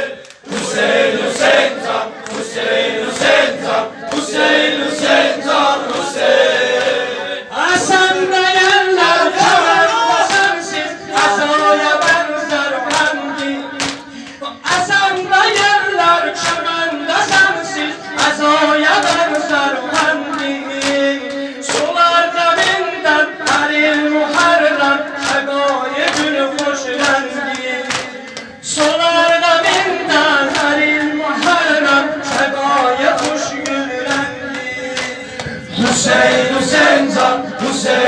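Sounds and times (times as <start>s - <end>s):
men singing lament in unison: 0.0s - 38.0s.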